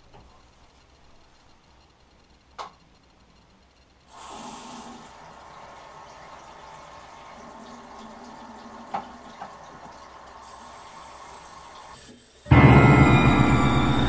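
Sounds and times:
tap water running into basin: 0:04.2 - 0:12.0.

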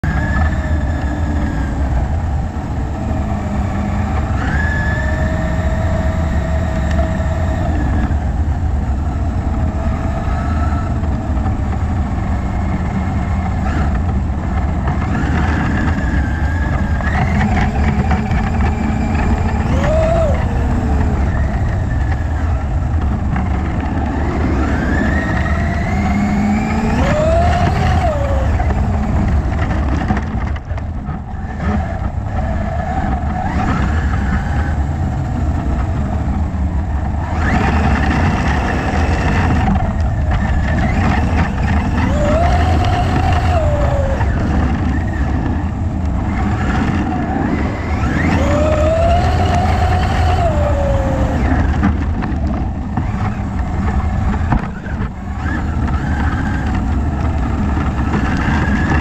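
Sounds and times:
electric motor whine: 0:00.0 - 0:30.4, 0:31.2 - 0:59.0
tyres on gravel: 0:37.0 - 0:59.0.

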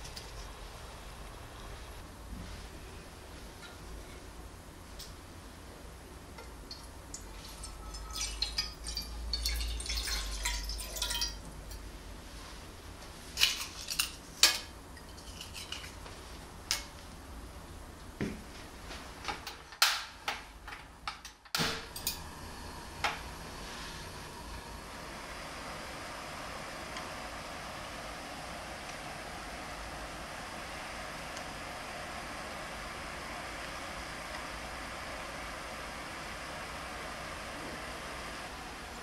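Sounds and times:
water pouring into pan: 0:06.7 - 0:11.5.

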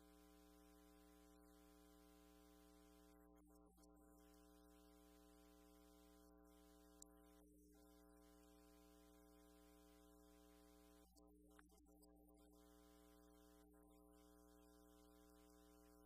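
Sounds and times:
faint electrical hum: 0:00.0 - 0:16.0
faint click: 0:11.1 - 0:12.2.

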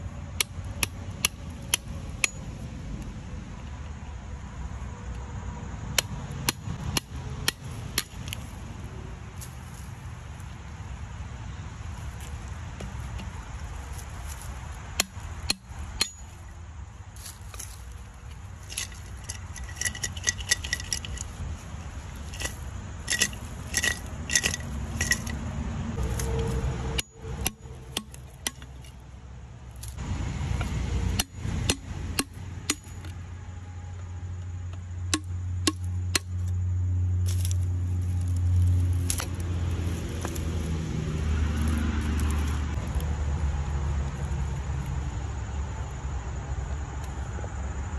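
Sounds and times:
low steady rumble: 0:00.0 - 0:47.9
brush rustling and snapping: 0:06.0 - 0:10.6, 0:11.9 - 0:29.0, 0:29.6 - 0:33.2, 0:37.2 - 0:43.2.

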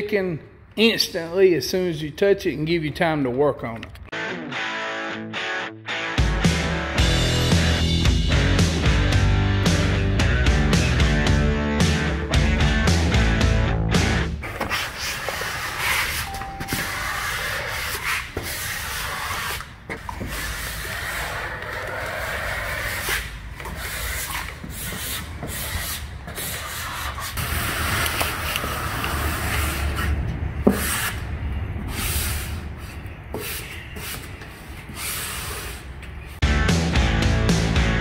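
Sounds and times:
squeegee rubbing over wet film: 0:14.4 - 0:31.2.

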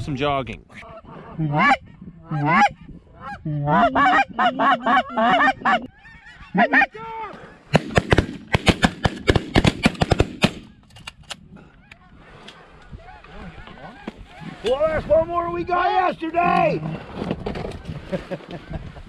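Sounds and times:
goose calls honking and clucking: 0:00.7 - 0:07.0, 0:11.8 - 0:14.7.

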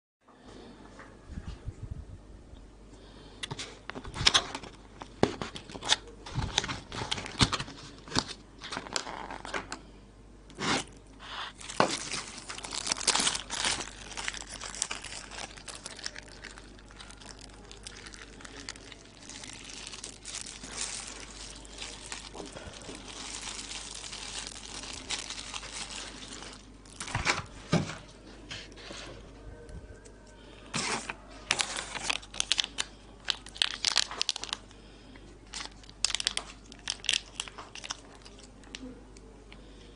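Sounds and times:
plastic packaging crinkling and tearing: 0:03.4 - 0:09.8, 0:10.5 - 0:27.9, 0:30.7 - 0:34.8, 0:35.4 - 0:38.9
plastic rustling: 0:03.5 - 0:09.8, 0:10.5 - 0:29.4, 0:30.6 - 0:34.7, 0:35.4 - 0:38.9.

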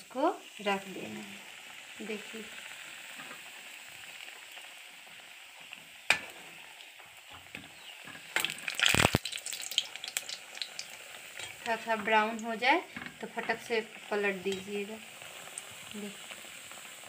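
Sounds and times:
puris sizzling in hot oil: 0:00.0 - 0:17.0.

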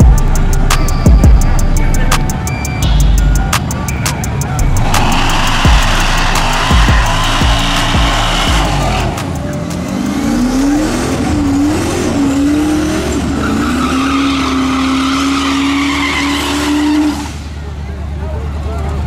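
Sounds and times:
drag car engine revving: 0:02.9 - 0:19.0
tyres squealing: 0:10.8 - 0:17.5.

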